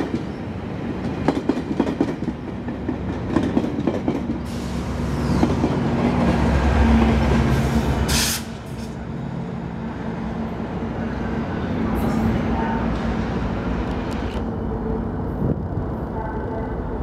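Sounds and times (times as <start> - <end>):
train wheels clicking on rails: 0.0 - 9.0
train rumble: 0.0 - 17.0.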